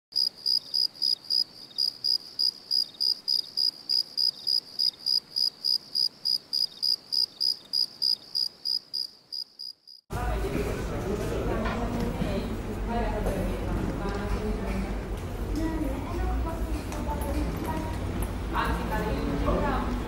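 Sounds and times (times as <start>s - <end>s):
cricket chirping: 0.2s - 10.0s.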